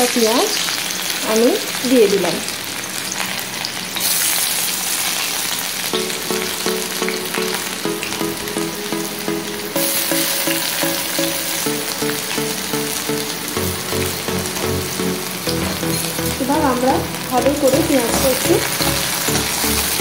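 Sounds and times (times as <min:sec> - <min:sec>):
onion sizzling in hot oil: 0:00.0 - 0:09.2, 0:09.8 - 0:20.0
quiet repeating tune: 0:05.9 - 0:20.0.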